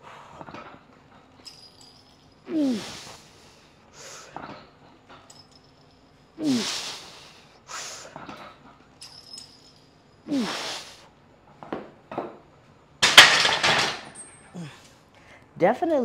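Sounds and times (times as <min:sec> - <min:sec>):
man grunting: 0:02.5 - 0:03.0
short sharp breaths: 0:06.4 - 0:08.2.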